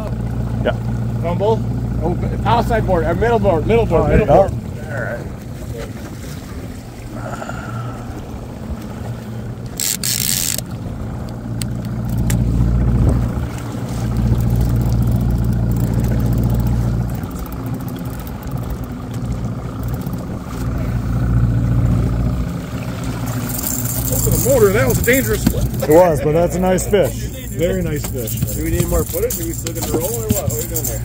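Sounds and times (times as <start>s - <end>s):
outboard motor running: 0.0s - 31.0s.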